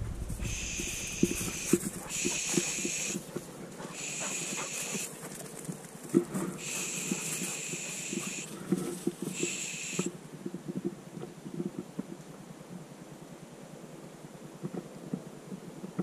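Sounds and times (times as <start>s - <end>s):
footsteps crackling in undergrowth: 0.0s - 10.1s
high electronic beeps: 0.4s - 3.2s.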